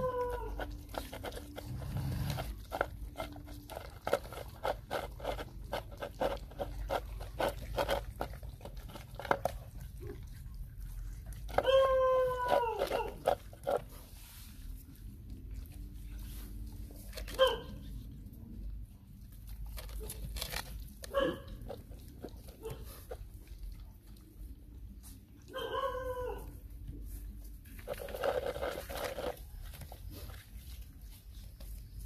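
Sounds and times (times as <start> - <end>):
puppies yelping: 0.0 - 2.5, 11.3 - 13.6, 25.5 - 26.6.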